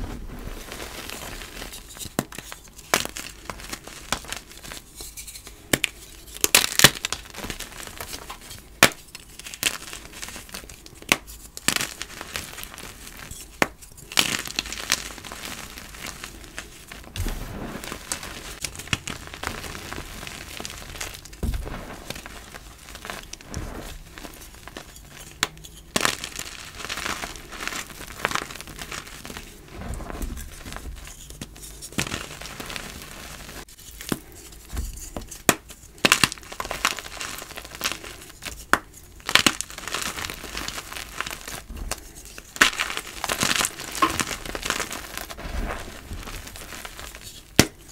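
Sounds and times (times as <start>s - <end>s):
chalk crunching and cracking: 0.0s - 47.9s.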